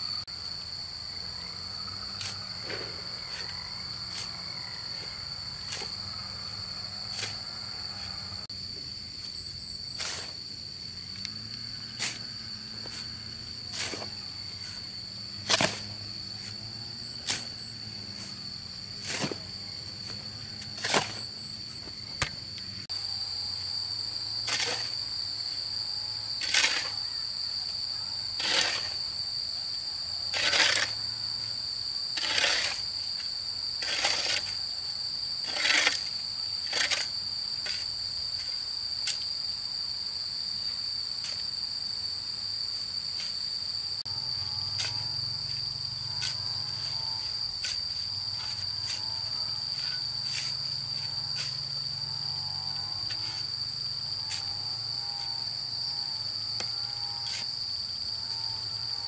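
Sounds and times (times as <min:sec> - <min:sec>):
insects droning: 0:00.0 - 0:59.0
hoe scraping sand and cement: 0:01.8 - 0:08.5, 0:09.2 - 0:25.5, 0:26.1 - 0:27.2, 0:28.3 - 0:29.2, 0:30.2 - 0:38.6, 0:43.1 - 0:53.6, 0:54.2 - 0:55.4, 0:56.7 - 0:57.6.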